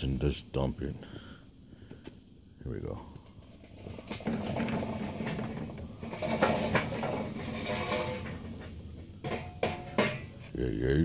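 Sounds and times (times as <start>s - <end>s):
hot coals clattering onto grate: 3.2s - 10.5s.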